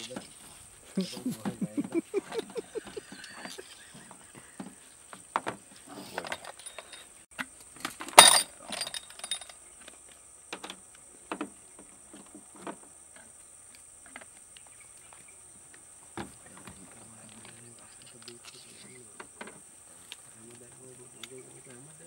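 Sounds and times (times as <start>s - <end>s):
irregular knocks and clinks: 1.4s - 9.6s.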